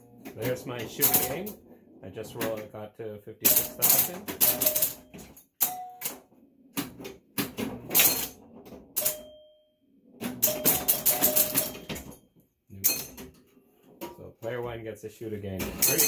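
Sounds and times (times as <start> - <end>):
pinball machine mechanical clacking: 0.0 - 2.7, 3.4 - 9.4, 10.1 - 13.4, 15.5 - 16.0.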